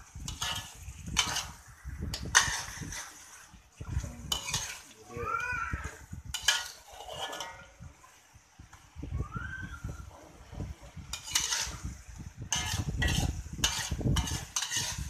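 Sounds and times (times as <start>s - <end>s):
metal spatula scraping a wok: 0.0s - 5.0s, 5.8s - 8.3s, 10.7s - 15.0s.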